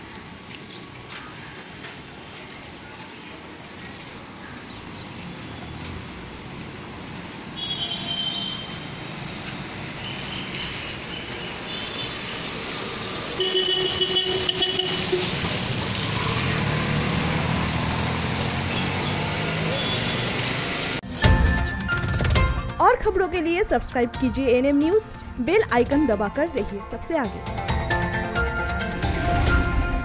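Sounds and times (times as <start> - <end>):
street traffic: 0.0 - 30.0
vehicle horns: 7.6 - 9.0, 10.0 - 12.5, 13.3 - 16.6, 18.6 - 20.9.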